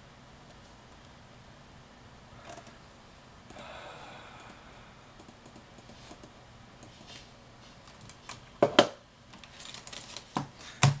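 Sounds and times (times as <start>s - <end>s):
soft breathy noise: 3.5s - 5.2s.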